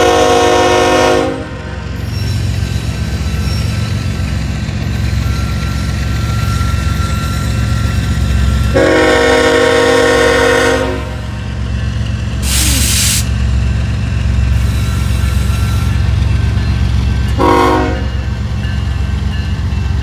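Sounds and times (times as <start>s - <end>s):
locomotive air horn: 0.0s - 1.7s, 8.7s - 11.4s, 17.4s - 18.2s
diesel locomotive engine drone: 0.0s - 20.0s
short hiss: 12.4s - 13.3s.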